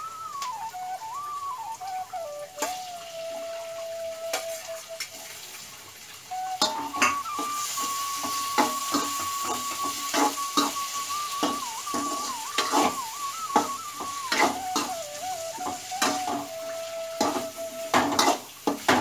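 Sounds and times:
soft instrumental melody: 0:00.0 - 0:05.4, 0:06.2 - 0:19.0
pan sizzling: 0:00.0 - 0:19.0
spoon tapping and scraping pan: 0:06.6 - 0:15.0, 0:17.2 - 0:19.0.

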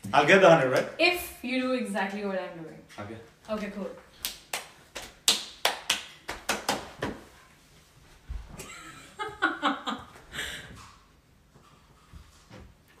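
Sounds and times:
sharp hand claps and slaps: 0:04.2 - 0:07.3
laughter: 0:08.6 - 0:10.3.

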